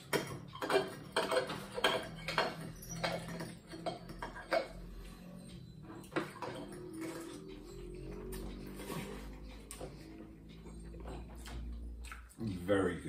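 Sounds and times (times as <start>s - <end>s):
forks clinking on plates: 0.0s - 10.1s.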